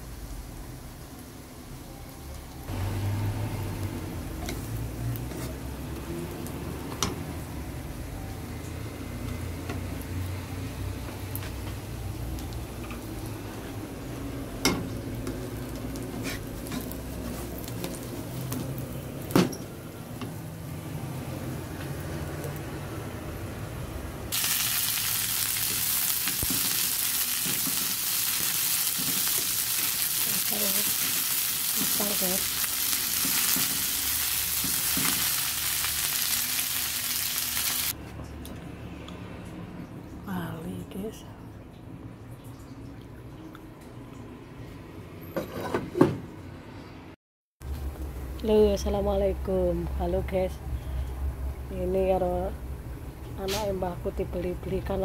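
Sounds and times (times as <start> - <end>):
egg frying in oil: 24.3 - 38.0
green beans sizzling in oil: 24.3 - 38.0.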